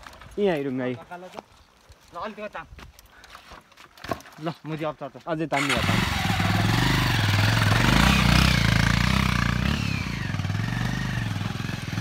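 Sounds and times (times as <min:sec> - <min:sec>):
motorcycle engine under load: 0:05.6 - 0:12.0.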